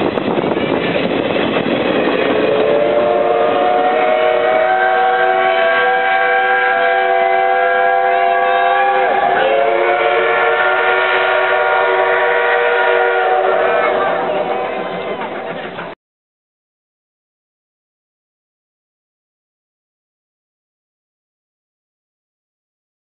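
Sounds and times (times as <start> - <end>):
train coaches rumbling past: 0.0 - 16.0
steam locomotive whistle: 2.0 - 15.5.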